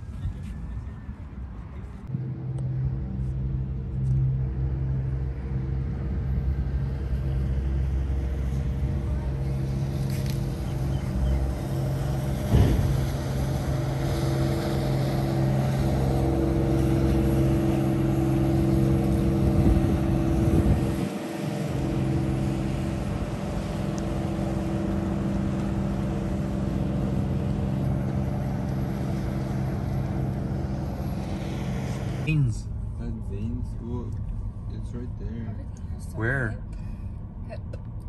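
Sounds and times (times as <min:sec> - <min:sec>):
boat engine humming: 0:00.0 - 0:38.0
brief thump: 0:12.5 - 0:13.1.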